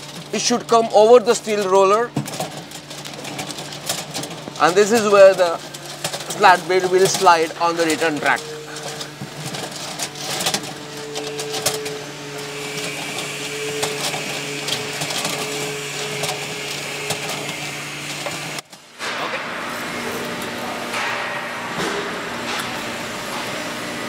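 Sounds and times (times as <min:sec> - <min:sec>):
conveyor slats clicking and rattling: 0:00.0 - 0:12.0
gearmotor hum: 0:00.0 - 0:24.0.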